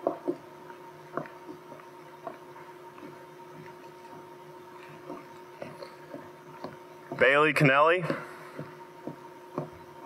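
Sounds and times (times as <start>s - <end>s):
electrical hum: 0.0s - 10.0s
footsteps on wooden floor: 8.0s - 9.8s.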